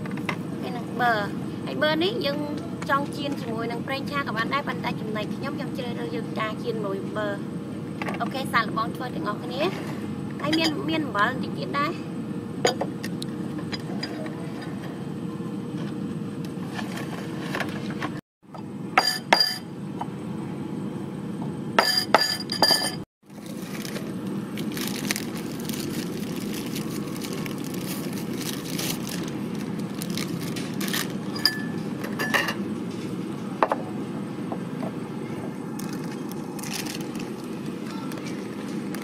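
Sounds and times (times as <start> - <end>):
ceramic bowls and cutlery clinking: 21.8 - 23.0, 31.3 - 32.6
plastic bag crinkling: 23.2 - 31.3, 35.8 - 39.0.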